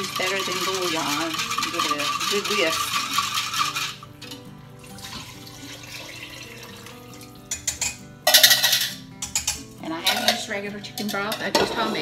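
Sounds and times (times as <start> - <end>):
liquid pouring into pot: 0.0 - 8.8.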